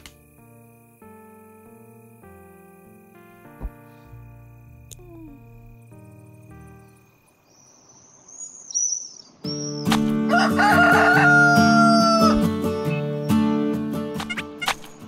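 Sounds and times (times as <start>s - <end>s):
rooster crowing: 10.3s - 12.5s.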